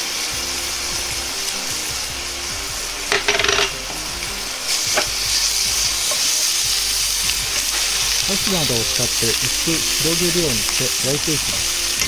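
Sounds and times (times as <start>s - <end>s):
chicken skin sizzling in oil: 0.0s - 12.0s
chopsticks scraping a pan: 3.1s - 3.9s, 4.7s - 12.0s.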